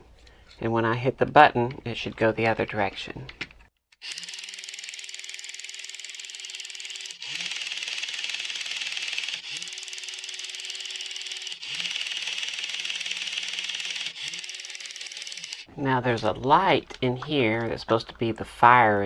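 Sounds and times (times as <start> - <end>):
toy motor and gears reversing: 3.9 - 15.7.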